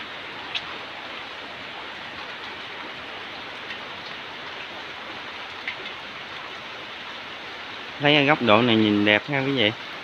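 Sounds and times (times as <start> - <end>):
rain falling on foliage: 0.0 - 10.0
faint raindrop taps: 3.6 - 4.7, 5.4 - 6.4.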